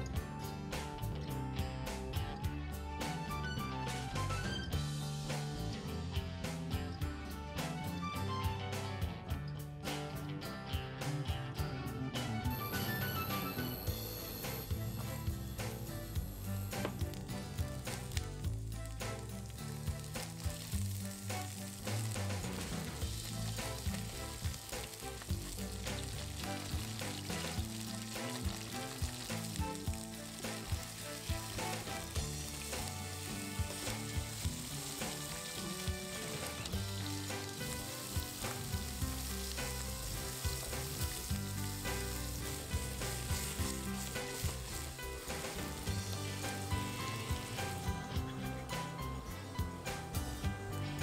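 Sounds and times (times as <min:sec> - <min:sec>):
fish frying in hot oil: 0:12.6 - 0:48.2
oil crackling and spitting: 0:14.1 - 0:50.9.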